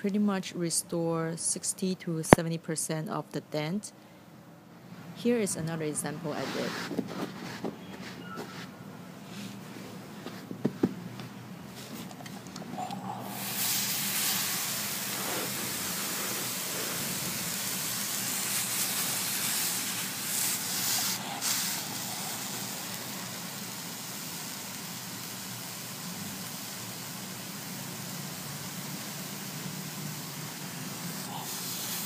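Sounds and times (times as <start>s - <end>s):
steam iron hissing: 12.8s - 32.0s.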